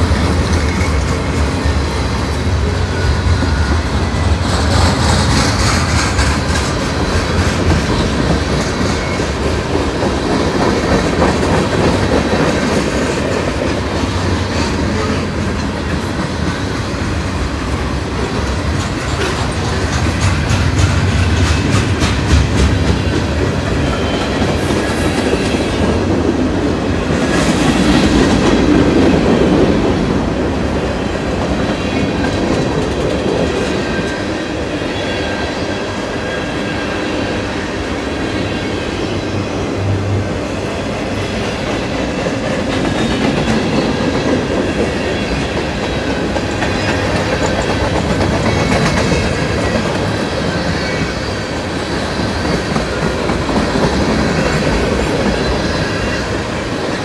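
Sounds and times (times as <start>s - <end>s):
wheels clacking over rail joints: 0.0s - 26.4s, 41.4s - 51.2s
freight train rumbling past: 0.0s - 57.0s.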